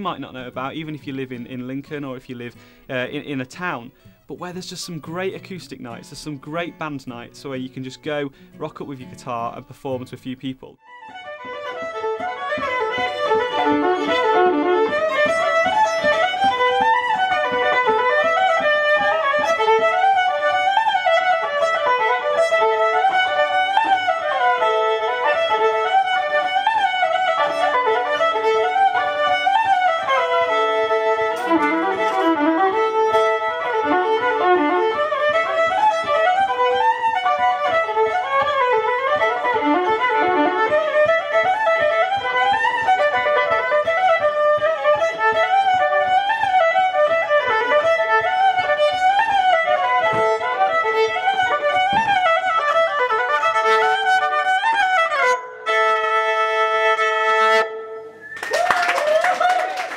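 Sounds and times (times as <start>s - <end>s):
electric violin melody: 10.8s - 58.4s.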